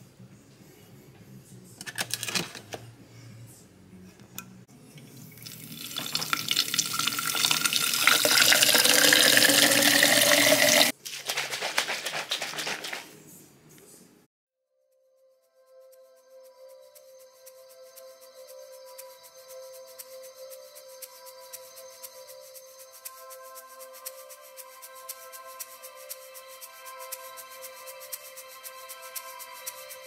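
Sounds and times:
tap water filling bottle: 5.0s - 10.9s
shaker bottle rattling: 5.4s - 13.2s.

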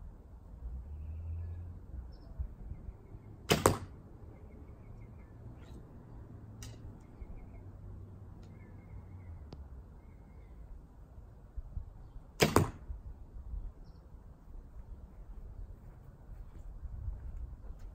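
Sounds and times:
bow shot: 3.5s - 4.0s, 12.4s - 12.9s.

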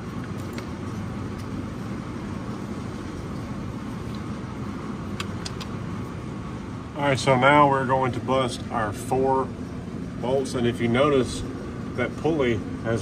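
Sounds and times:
low workshop rumble: 0.0s - 13.0s.

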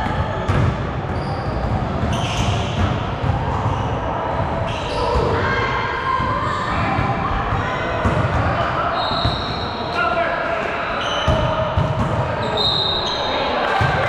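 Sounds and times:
shoe squeaks: 1.1s - 2.8s, 4.7s - 5.3s, 8.9s - 9.8s, 11.0s - 11.6s, 12.4s - 13.4s
players' voices: 1.9s - 14.0s.

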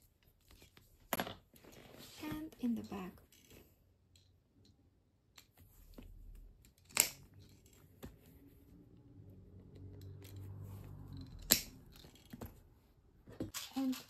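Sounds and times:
hole-punch pliers snapping: 6.8s - 7.2s.

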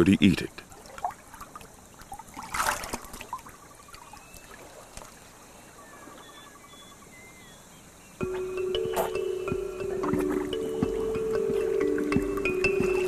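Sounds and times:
water splashing and trickling: 0.0s - 5.8s, 8.2s - 13.0s
faint chirping calls: 0.0s - 13.0s
music with held notes: 8.2s - 13.0s.

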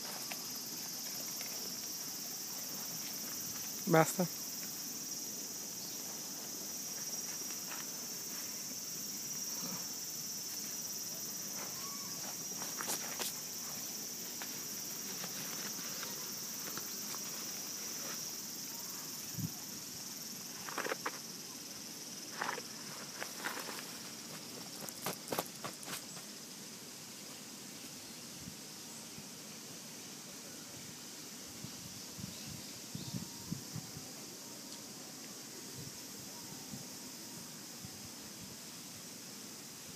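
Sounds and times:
insects buzzing: 0.0s - 39.9s
footsteps on gravel: 11.5s - 17.4s, 22.3s - 26.3s.

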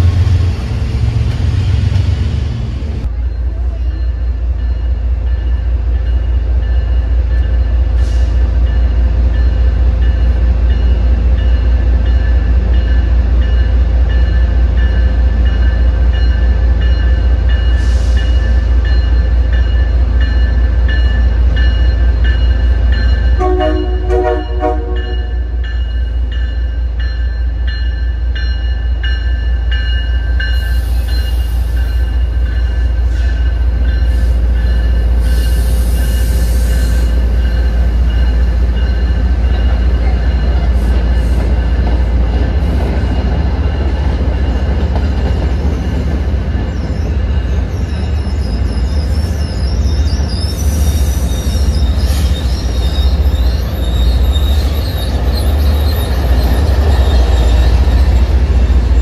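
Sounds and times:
diesel train engine rumble: 0.0s - 59.0s
train bell ringing: 3.0s - 59.0s
train horn: 23.4s - 25.6s
train wheels screeching: 30.4s - 44.0s, 45.0s - 59.0s.

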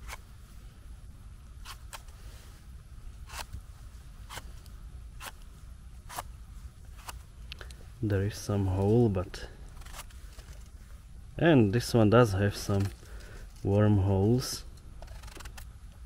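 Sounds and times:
knife blade scraping mushroom stem: 3.3s - 3.6s, 4.3s - 4.5s, 6.0s - 6.3s, 9.7s - 10.2s, 12.5s - 13.0s, 15.0s - 15.7s.

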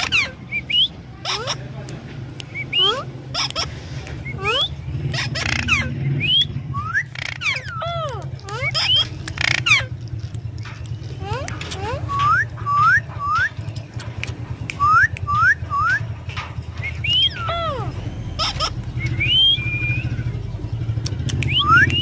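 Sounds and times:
parakeet whistling: 2.5s - 10.0s, 11.2s - 13.7s, 14.7s - 16.2s, 16.8s - 20.4s, 21.4s - 22.0s.

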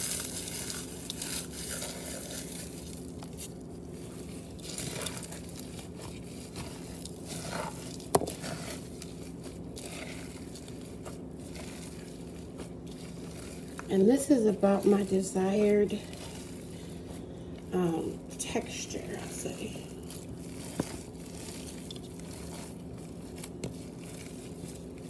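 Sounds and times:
crackers crumbling: 0.0s - 25.0s
meat mixture squishing by hand: 0.0s - 25.0s.

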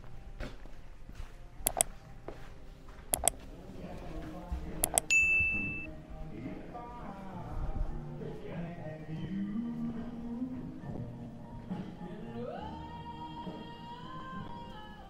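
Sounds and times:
faint background murmur: 0.0s - 15.0s
sharp double clicks: 1.7s - 1.9s, 3.2s - 3.4s, 4.8s - 5.1s
bright bell-like ding: 5.1s - 5.9s.

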